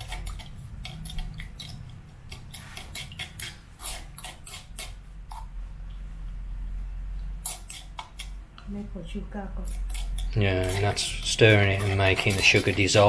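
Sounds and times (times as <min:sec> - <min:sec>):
metal spoon scraping stone mortar: 0:00.0 - 0:05.5, 0:09.6 - 0:13.0
low steady hum: 0:00.0 - 0:13.0.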